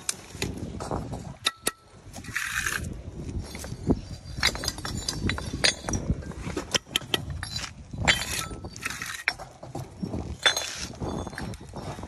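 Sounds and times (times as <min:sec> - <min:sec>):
trowel clinking on tub and bricks: 0:00.9 - 0:12.0
trowel scraping mortar: 0:02.2 - 0:04.6, 0:08.1 - 0:11.3.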